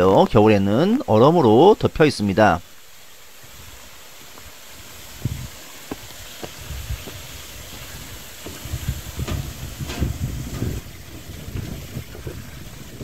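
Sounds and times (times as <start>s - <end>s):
footsteps on bridge deck: 3.4s - 12.7s
wind buffeting microphone: 3.4s - 13.0s.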